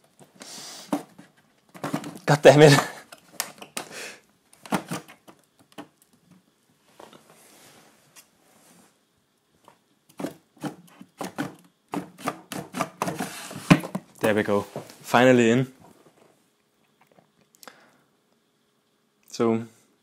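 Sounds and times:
wooden drawer scraping: 1.8 - 3.0, 10.2 - 14.0.

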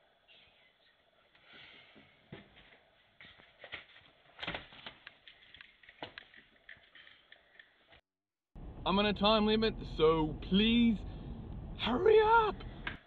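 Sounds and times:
paper map rustling and crackling: 2.3 - 8.0.

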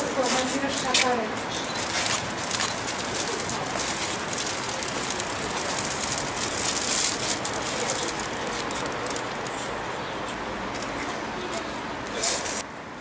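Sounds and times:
cellophane crinkling: 1.8 - 9.6.

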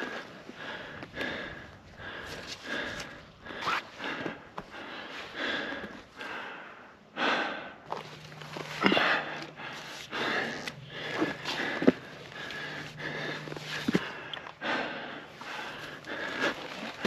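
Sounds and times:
person breathing hard: 0.0 - 17.0
faint low hum: 4.3 - 17.0.

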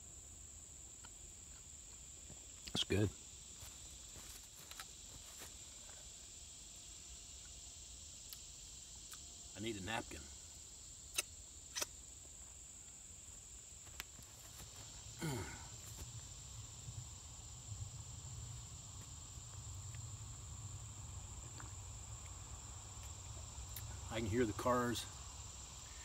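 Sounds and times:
insects chirring: 0.0 - 26.0
sharp clicks: 11.1 - 12.0.

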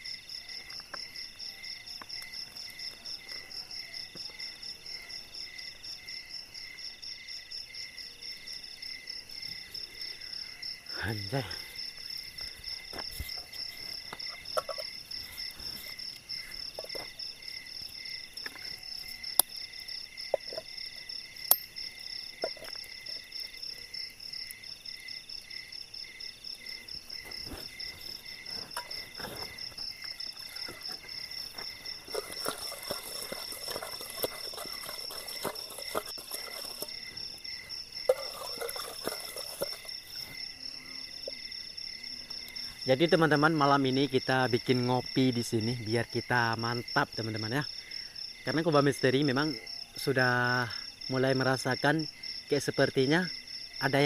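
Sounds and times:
crickets and insects trilling: 0.0 - 54.0
camp cookware clicks and knocks: 14.1 - 15.0, 21.5 - 21.8, 28.5 - 37.0, 38.1 - 39.9.

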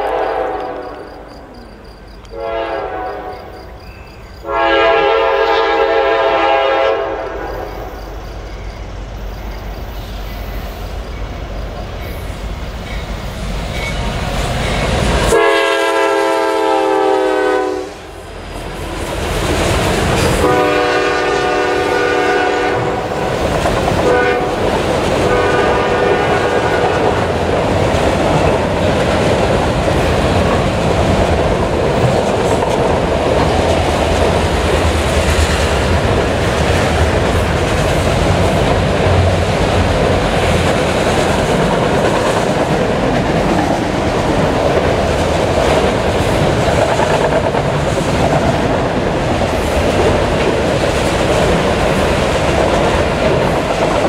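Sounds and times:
train air horn blasts: 0.0 - 1.1, 2.3 - 3.6, 4.4 - 7.8, 15.2 - 18.2, 20.4 - 23.2, 24.0 - 27.2
train cars clacking over rails: 2.2 - 17.5, 18.2 - 54.0.

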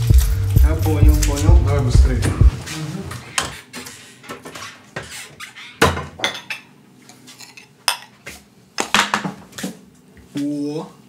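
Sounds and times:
tableware clinking and knocking: 5.8 - 8.2, 8.8 - 9.4.

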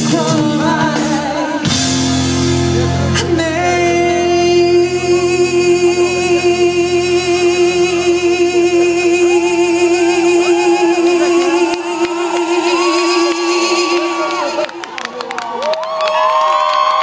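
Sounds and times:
man singing long note: 2.8 - 14.9
audience whooping and cheering: 9.2 - 17.0.

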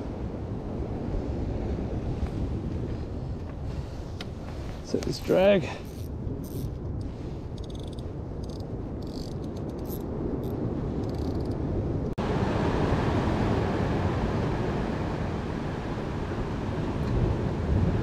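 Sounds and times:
wind on microphone: 0.0 - 18.0
surf on rocks: 4.2 - 5.9, 12.2 - 18.0
fishing reel clicking: 5.9 - 6.7, 7.6 - 10.0.

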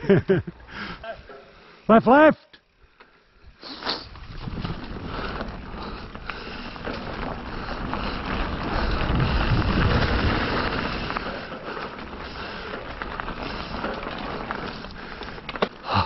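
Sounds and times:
bike tyre rumble: 2.6 - 16.0
wind rushing over microphone: 4.1 - 11.4.

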